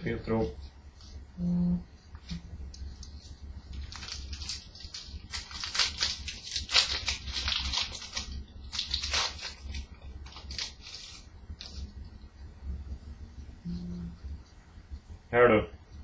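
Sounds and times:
low hum: 0.0 - 16.0
foil wrappers crackling: 3.7 - 11.9
cards being handled: 3.8 - 11.8.

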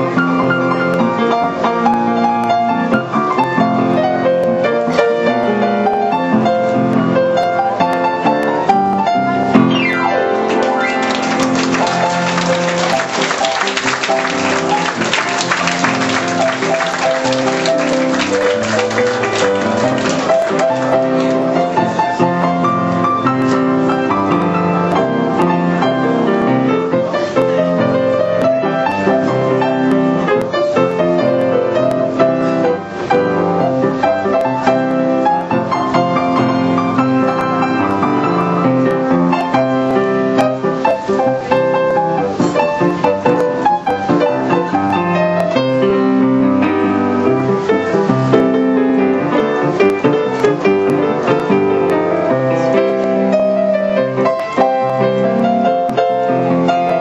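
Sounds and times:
piano playing: 0.0 - 57.0.

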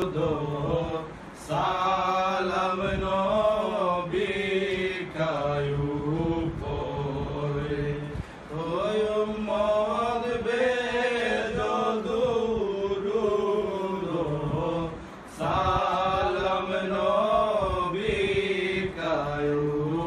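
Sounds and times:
men chanting unaccompanied: 0.0 - 20.0.

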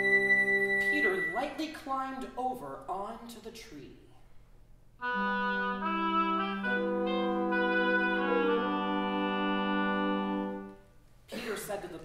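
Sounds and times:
woodwind quintet playing chords: 0.0 - 1.6, 5.0 - 10.8.

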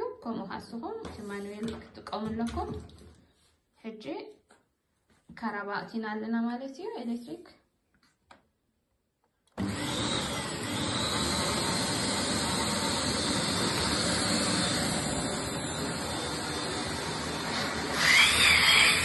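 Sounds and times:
vacuum cleaner motor running: 9.6 - 19.0.

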